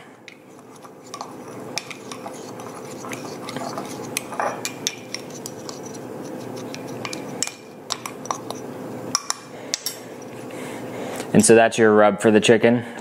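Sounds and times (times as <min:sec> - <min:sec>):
spoon clicking and scraping bowl: 0:00.3 - 0:10.4.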